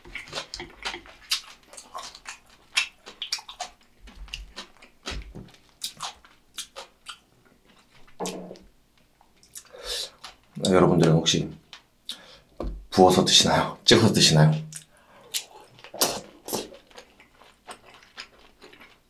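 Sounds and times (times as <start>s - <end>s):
wet chewing sounds: 0.0s - 8.3s, 9.2s - 11.1s, 14.7s - 19.0s.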